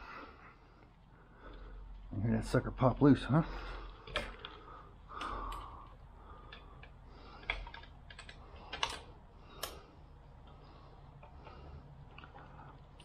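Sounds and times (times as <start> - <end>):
metal tools clicking and tapping: 6.4 - 9.8.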